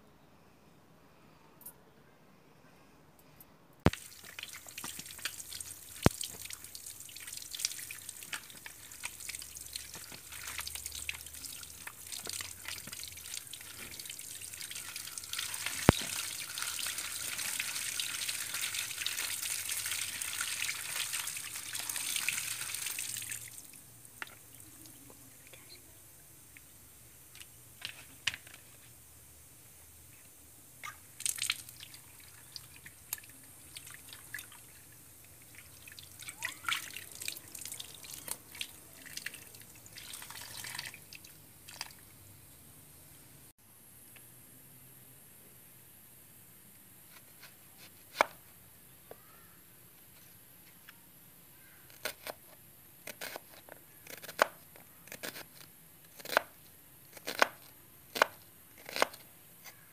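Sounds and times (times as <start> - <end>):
tap water splashing: 3.9 - 14.2
water drips: 3.9 - 25.8, 30.8 - 42.1.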